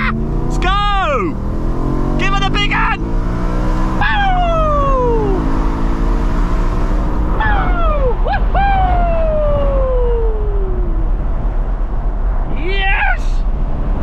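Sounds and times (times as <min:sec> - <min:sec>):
car engine revs falling: 0:00.0 - 0:08.5.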